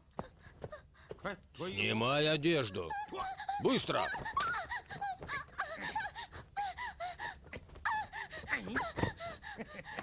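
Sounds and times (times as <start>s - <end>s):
woman gasping and whimpering: 4.6s - 10.0s.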